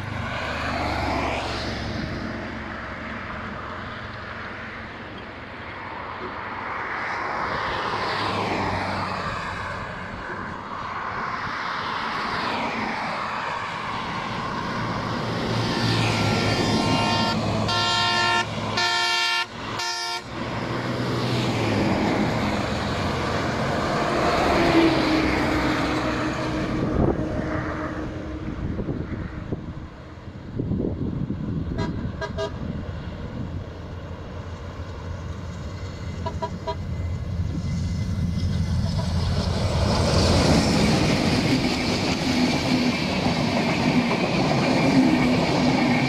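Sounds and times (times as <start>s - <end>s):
vehicles passing: 0.0s - 46.0s
loud horn blasts: 16.3s - 20.4s, 31.7s - 32.7s, 36.2s - 36.9s.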